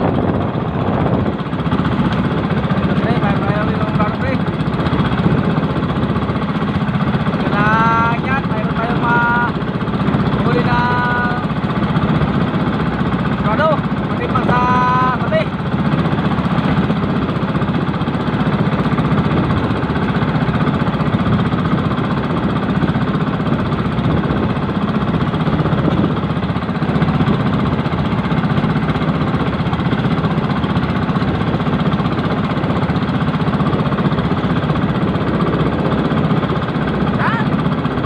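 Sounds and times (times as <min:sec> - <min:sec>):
boat engine running: 0:00.0 - 0:38.0.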